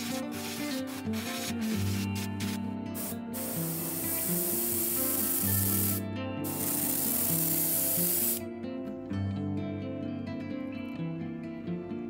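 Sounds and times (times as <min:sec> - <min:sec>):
airbrush spraying hiss: 0:00.0 - 0:08.4
background music: 0:00.0 - 0:12.0.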